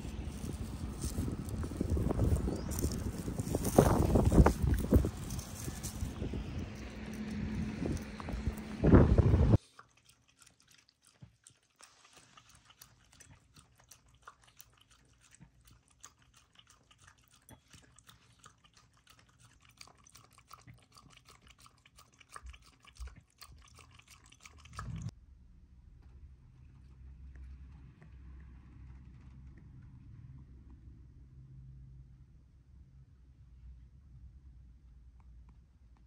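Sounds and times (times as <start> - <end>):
dog lapping water: 0.0 - 25.1.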